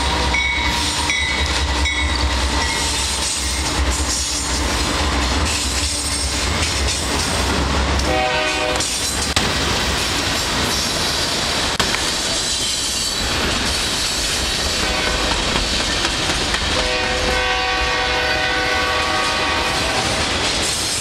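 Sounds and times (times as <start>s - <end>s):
train horn chord: 8.0s - 8.8s, 14.8s - 15.3s, 16.8s - 20.3s.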